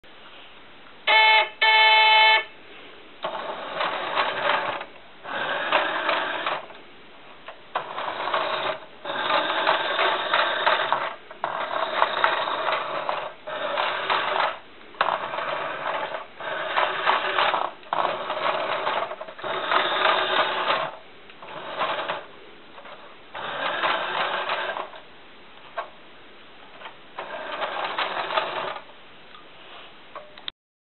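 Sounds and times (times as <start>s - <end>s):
loud beeping tones: 1.1s - 2.6s
toy car electric motor whirring: 3.2s - 6.8s, 7.7s - 25.0s, 26.7s - 28.9s.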